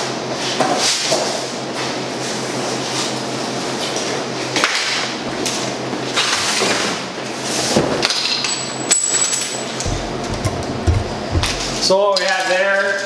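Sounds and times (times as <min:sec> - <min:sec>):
low hum and hiss: 0:09.8 - 0:12.2
footsteps: 0:09.9 - 0:11.9.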